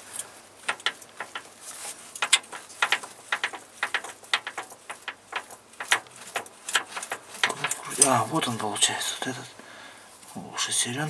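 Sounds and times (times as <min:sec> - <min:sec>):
metallic gear clicking: 0:02.2 - 0:08.2.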